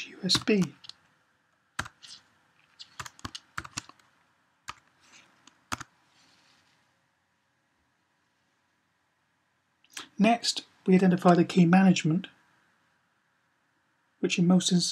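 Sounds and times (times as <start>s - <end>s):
computer keyboard clicking: 0.3s - 1.0s, 1.8s - 2.2s, 2.8s - 4.1s, 4.7s - 5.9s.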